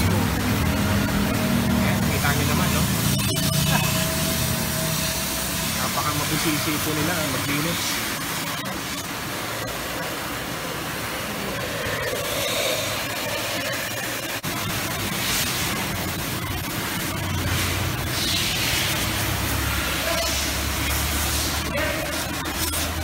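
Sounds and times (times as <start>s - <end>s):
pressure washer spray hissing: 2.0s - 8.9s, 14.6s - 23.0s.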